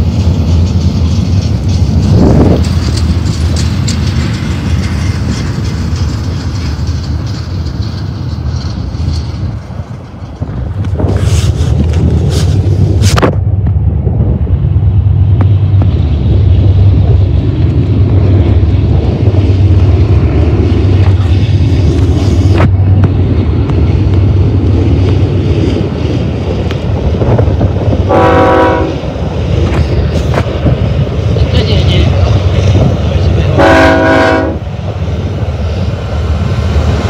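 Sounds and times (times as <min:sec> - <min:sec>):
diesel locomotive rumble: 0:00.0 - 0:37.0
train horn blast: 0:28.1 - 0:29.0, 0:33.6 - 0:34.6.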